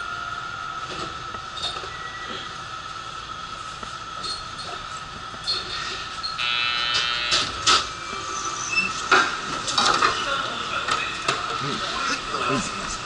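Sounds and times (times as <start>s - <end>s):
steady high hum: 0.0s - 13.0s
train doors sliding open: 4.2s - 11.6s
short buzzer: 6.4s - 7.8s.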